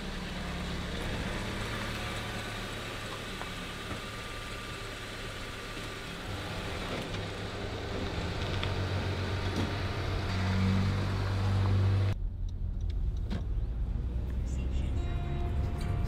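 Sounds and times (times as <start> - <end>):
car engine idling: 0.0 - 10.3.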